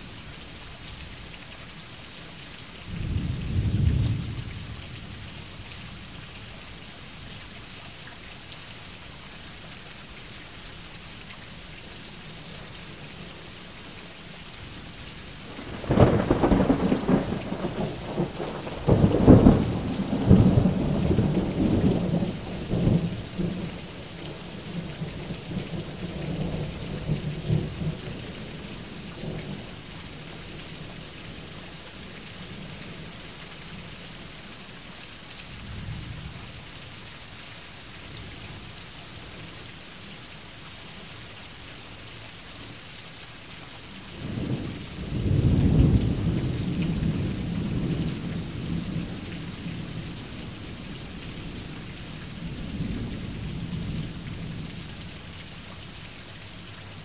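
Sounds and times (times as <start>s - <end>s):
steady rain falling: 0.0s - 57.0s
thunder rumbling: 15.5s - 23.7s.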